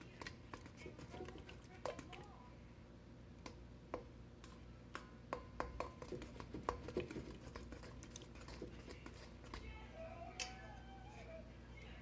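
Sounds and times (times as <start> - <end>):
fork scraping metal bowl: 5.6 - 9.7.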